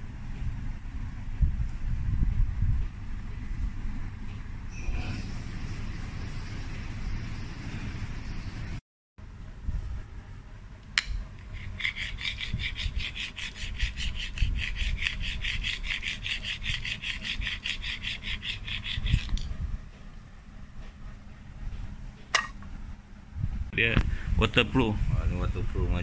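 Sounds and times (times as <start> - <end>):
scratching on epoxy floor: 11.5 - 19.5.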